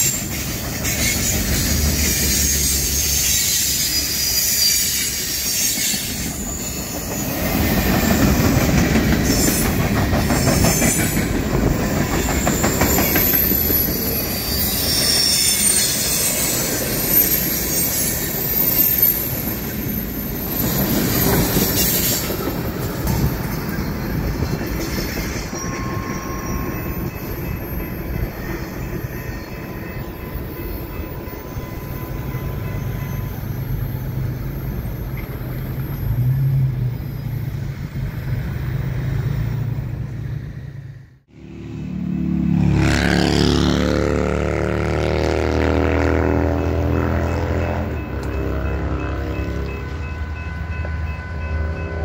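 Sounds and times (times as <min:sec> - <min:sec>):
train cars rolling over rails: 0:00.0 - 0:31.3
diesel locomotive engine running: 0:39.8 - 0:52.0.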